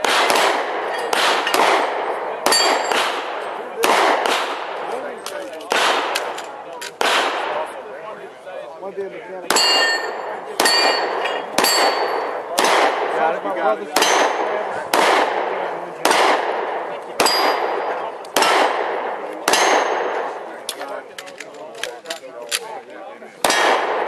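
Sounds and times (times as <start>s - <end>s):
handgun shots: 0.0s - 7.5s, 9.5s - 13.1s, 14.0s - 15.4s, 16.0s - 22.7s, 23.4s - 24.0s
steel plate ringing clang: 2.5s - 3.0s, 9.6s - 12.4s, 17.2s - 17.7s.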